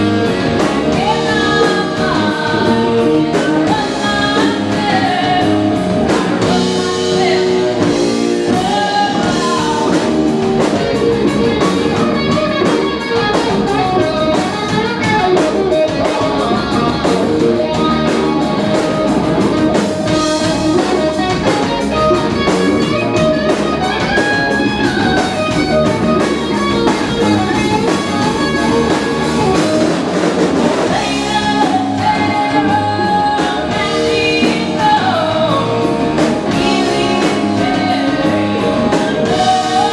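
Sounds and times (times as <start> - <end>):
drum kit: 0.0 - 39.9
electric guitars: 0.0 - 39.9
woman singing into a microphone: 0.7 - 19.0, 30.9 - 39.9.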